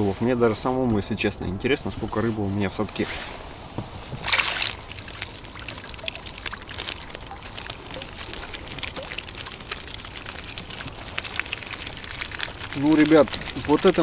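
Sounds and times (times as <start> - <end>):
water trickling and dripping: 4.2 - 14.0.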